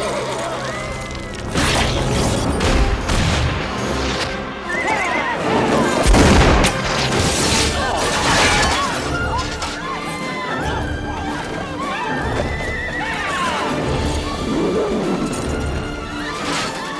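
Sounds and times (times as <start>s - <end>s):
orchestral score: 0.0s - 16.9s
horses whinnying: 8.6s - 16.8s.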